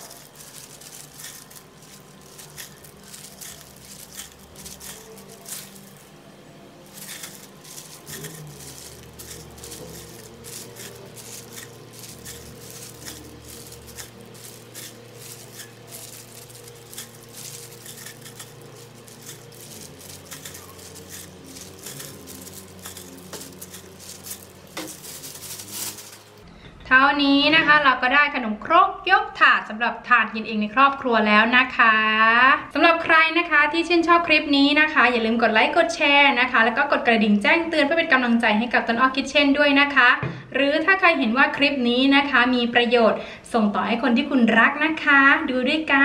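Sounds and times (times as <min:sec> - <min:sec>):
pan crackling and sizzling: 0:00.0 - 0:26.5.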